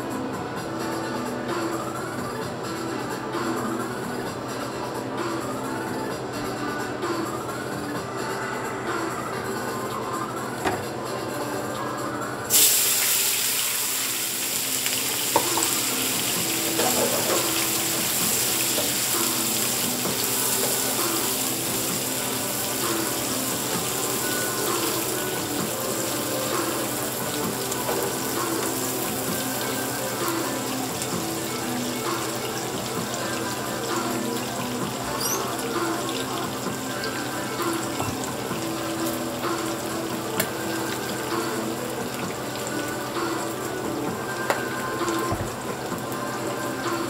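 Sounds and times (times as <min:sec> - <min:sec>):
background music: 0:00.0 - 0:47.0
vegetables sizzling in oil: 0:12.5 - 0:47.0.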